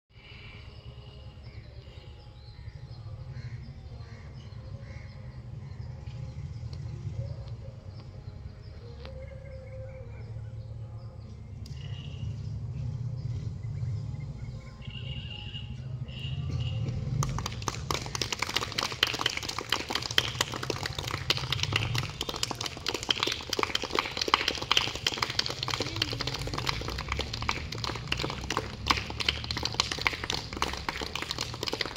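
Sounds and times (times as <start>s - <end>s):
bird chirps: 0.5s - 17.0s
steady low rumble: 10.6s - 14.9s.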